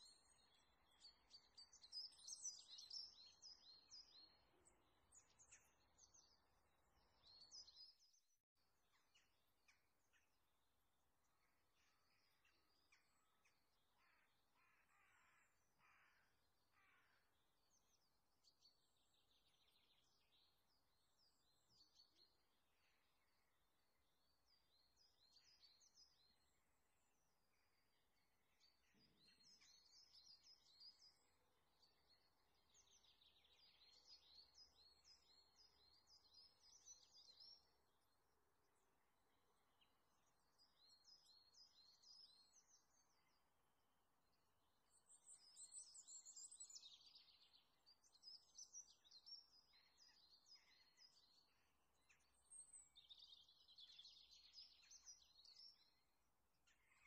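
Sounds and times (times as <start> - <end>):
faint bird chirping: 0.0 - 10.5, 24.2 - 43.5, 44.2 - 57.0.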